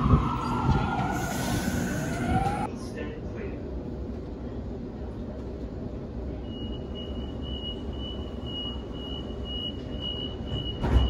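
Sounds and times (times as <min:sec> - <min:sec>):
train humming: 0:00.0 - 0:11.0
high beeping warning tone: 0:06.4 - 0:10.8
train doors thumping shut: 0:10.4 - 0:11.0.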